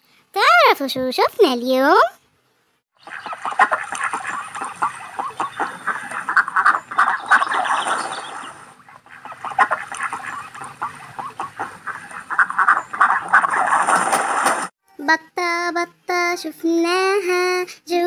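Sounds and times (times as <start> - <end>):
ducks quacking: 3.0 - 14.7.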